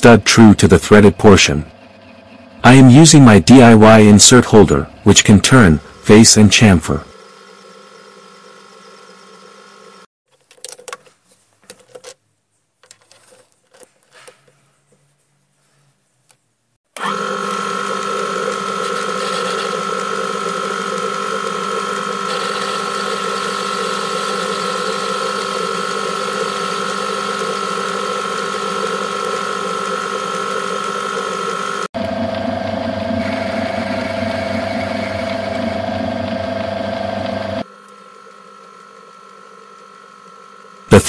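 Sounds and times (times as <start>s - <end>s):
metal lathe motor whine: 7.1s - 10.1s, 17.0s - 41.0s.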